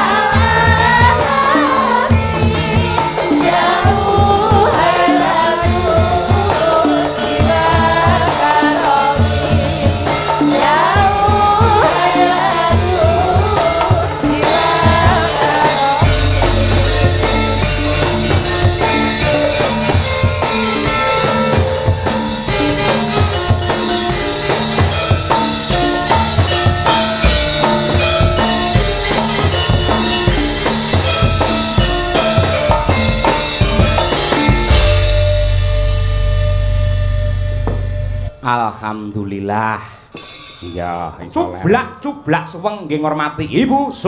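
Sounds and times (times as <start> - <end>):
women singing together: 0.0 - 17.1
ensemble with drums and jingling percussion: 0.0 - 44.0.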